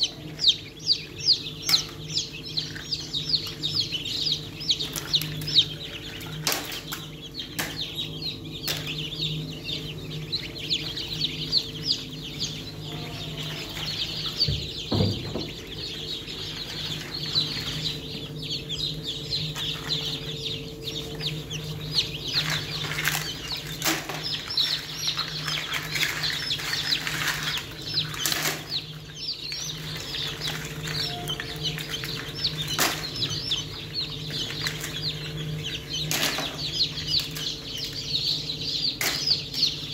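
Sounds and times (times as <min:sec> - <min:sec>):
chicks peeping: 0:00.0 - 0:39.9
steady low hum: 0:00.0 - 0:39.9
sharp knocks: 0:14.4 - 0:15.8.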